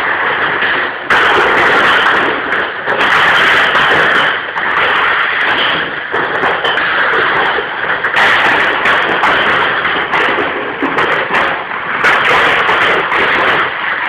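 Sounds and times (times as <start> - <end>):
sharp knocks: 0.0 - 14.0.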